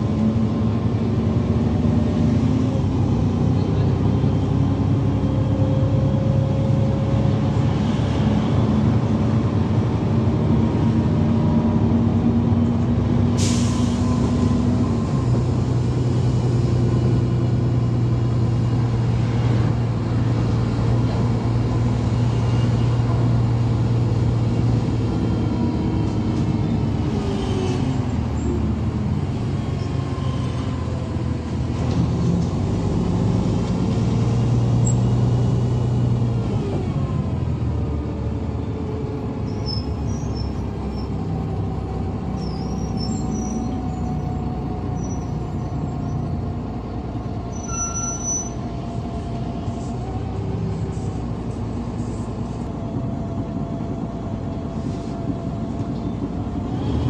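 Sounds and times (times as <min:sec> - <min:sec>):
bus engine running: 0:00.0 - 0:57.0
faint high squeaks: 0:47.5 - 0:48.6.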